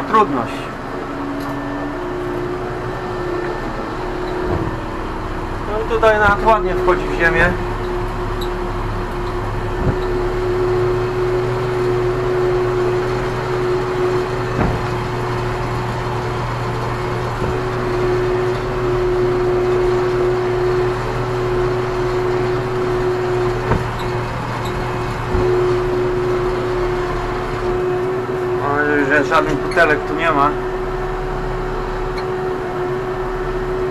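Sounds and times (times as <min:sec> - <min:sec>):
tractor engine droning: 0:00.0 - 0:33.9
short knocks: 0:03.3 - 0:28.1.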